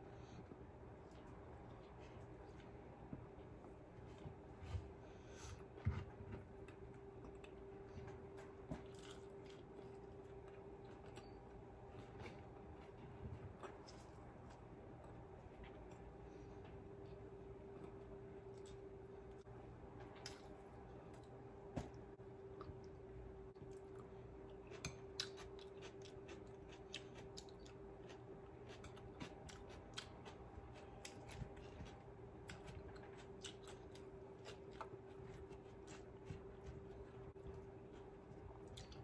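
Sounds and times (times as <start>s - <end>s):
steady low hum: 0.0s - 39.0s
crunchy chewing: 6.6s - 19.4s, 23.6s - 39.0s.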